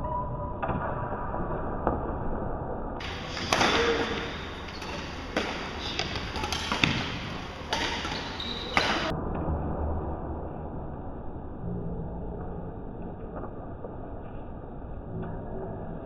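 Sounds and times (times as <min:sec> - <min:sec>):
rackets hitting shuttlecock: 0:03.0 - 0:09.1.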